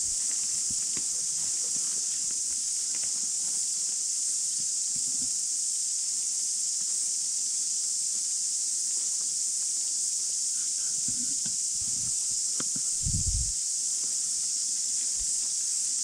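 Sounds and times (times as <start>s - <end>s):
high-pitched hiss: 0.0s - 16.0s
soft low thuds: 12.9s - 13.6s.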